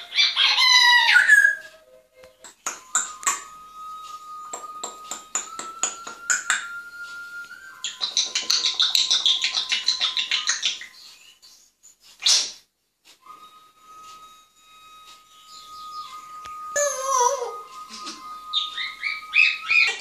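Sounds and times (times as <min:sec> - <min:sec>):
parrot loud call: 0:00.0 - 0:01.7.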